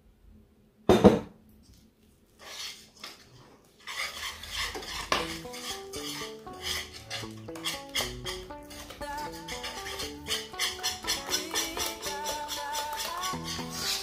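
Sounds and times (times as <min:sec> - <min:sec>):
whisk scraping and clinking in pan: 0:03.8 - 0:14.0
light background music plucked notes: 0:04.8 - 0:14.0.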